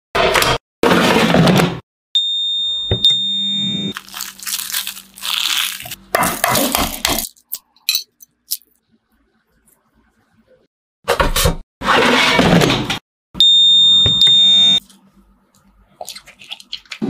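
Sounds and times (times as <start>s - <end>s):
aluminium foil crinkling and tearing: 3.9s - 7.5s.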